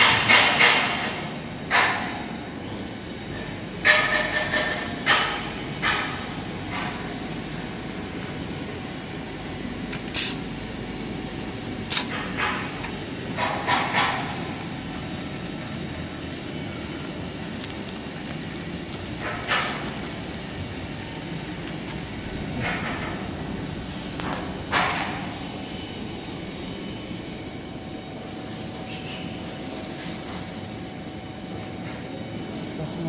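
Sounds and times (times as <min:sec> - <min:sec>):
steady machine hum: 0:00.0 - 0:33.0
sealer clacks: 0:11.9 - 0:26.0
plastic film crinkling: 0:13.4 - 0:22.9.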